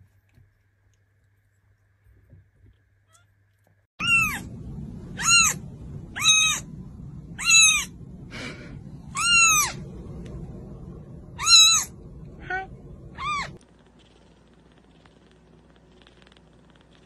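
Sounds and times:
kitten mewing: 11.4s - 13.6s.

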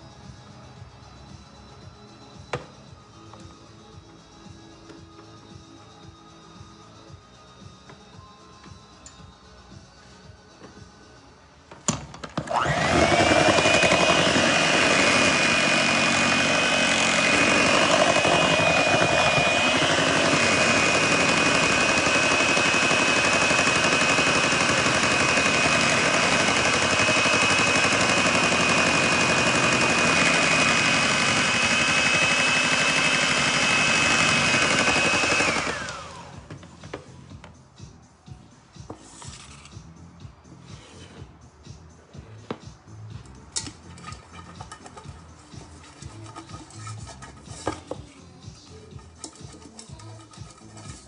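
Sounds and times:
electric hand mixer whining: 12.4s - 36.5s.

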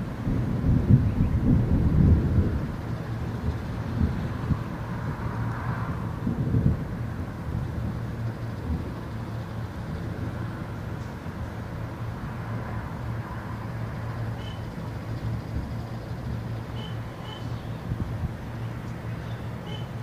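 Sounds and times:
distant thunder rumbling: 0.3s - 2.8s.

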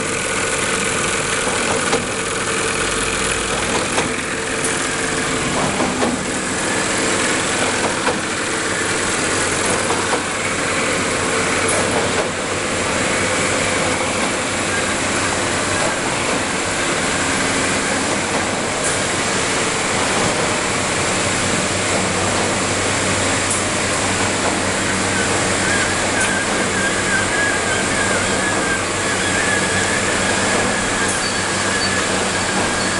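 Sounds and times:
conveyor belt machinery running: 0.0s - 32.9s
low machine hum: 0.0s - 32.9s.

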